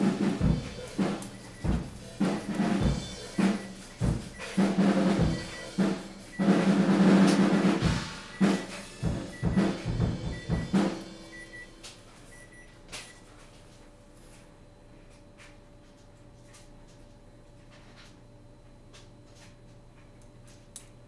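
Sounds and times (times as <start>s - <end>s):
snare hits: 0.0s - 11.1s
bass drum kicks: 0.0s - 11.5s
drum roll: 0.0s - 11.9s.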